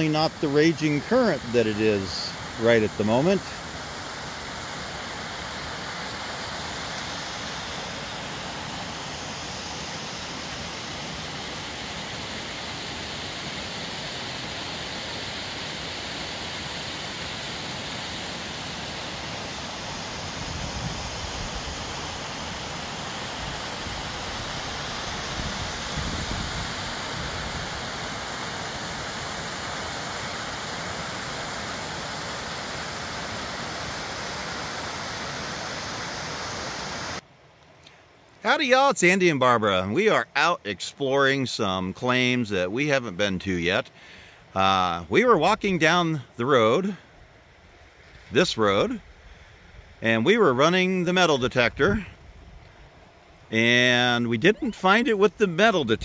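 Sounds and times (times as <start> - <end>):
creek rushing over rocks: 0.0 - 37.2.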